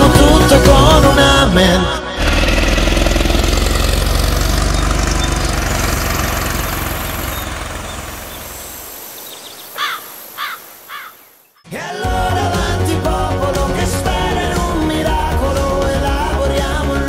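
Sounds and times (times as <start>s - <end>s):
song music: 0.0s - 2.3s, 11.7s - 17.0s
van engine driving away: 0.0s - 9.0s.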